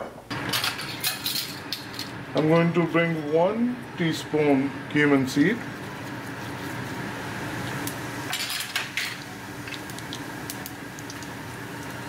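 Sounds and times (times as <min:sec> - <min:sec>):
seeds sizzling in hot oil: 0:04.9 - 0:12.0.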